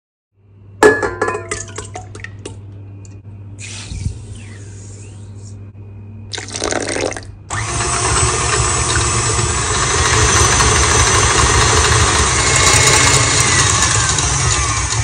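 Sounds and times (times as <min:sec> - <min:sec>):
stand mixer motor hum: 0:07.5 - 0:15.0
wire whisk whirring: 0:07.5 - 0:15.0.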